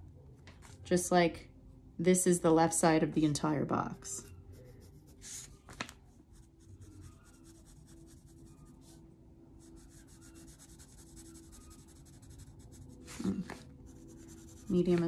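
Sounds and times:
pencil scratching on paper: 0:04.5 - 0:05.6, 0:06.3 - 0:09.0, 0:09.6 - 0:15.0
paper rustling: 0:05.3 - 0:06.0.

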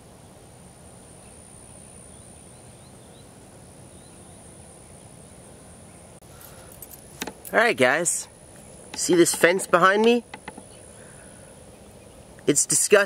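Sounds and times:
high-pitched insect trill: 0:00.8 - 0:03.3.

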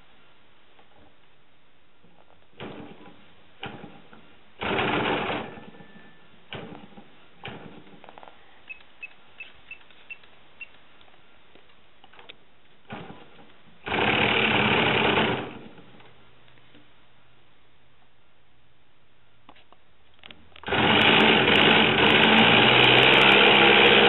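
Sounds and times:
model airplane engine firing: 0:04.6 - 0:05.8, 0:20.6 - 0:24.0.

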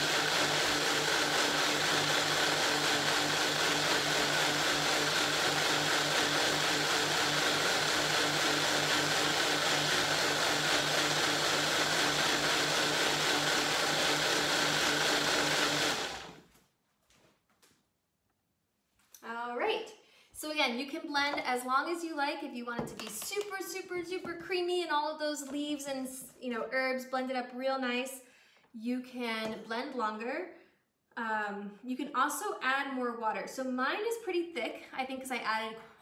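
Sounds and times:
blender running: 0:00.0 - 0:16.5.

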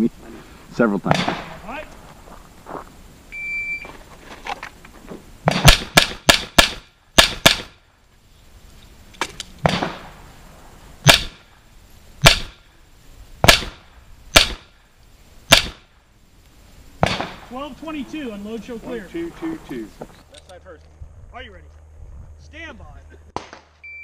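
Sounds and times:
pistol shots at steel targets: 0:05.5 - 0:07.7, 0:11.0 - 0:11.4, 0:12.2 - 0:12.6, 0:13.4 - 0:14.7, 0:15.5 - 0:15.9.

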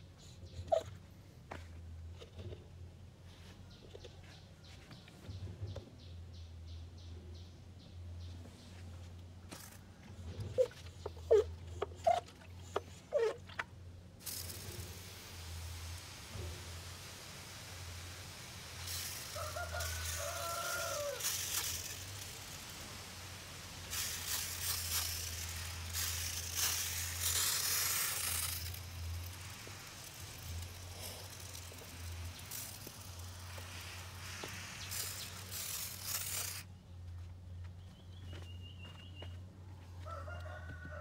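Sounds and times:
water hissing from spray nozzle: 0:14.2 - 0:36.6.

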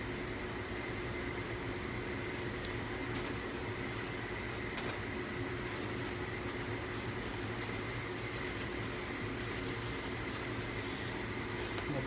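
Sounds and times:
background hum with high whine: 0:00.0 - 0:12.0
packaging rustling: 0:05.6 - 0:12.0.

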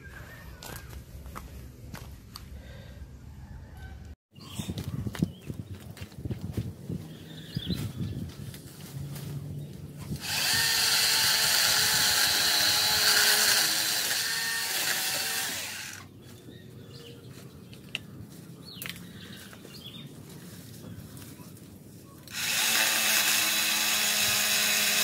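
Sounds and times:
electric chainsaw cutting branches: 0:10.1 - 0:16.1, 0:22.3 - 0:25.0.

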